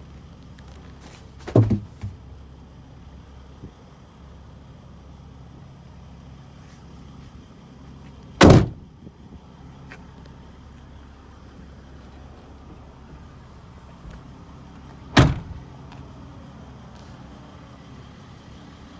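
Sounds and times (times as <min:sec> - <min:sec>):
diesel engine idling: 0:00.0 - 0:18.9
loud thump: 0:01.4 - 0:02.2, 0:08.4 - 0:08.8, 0:15.2 - 0:15.6.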